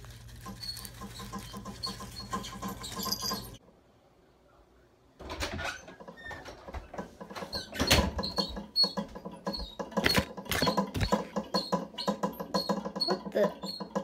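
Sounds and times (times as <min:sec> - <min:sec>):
gerbil scratching and gnawing: 0:00.0 - 0:03.6, 0:09.6 - 0:13.9.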